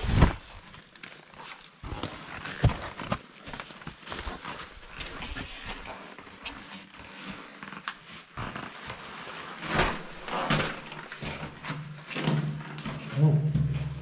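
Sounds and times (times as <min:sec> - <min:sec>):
footsteps crunching on gravel: 0:01.8 - 0:07.6.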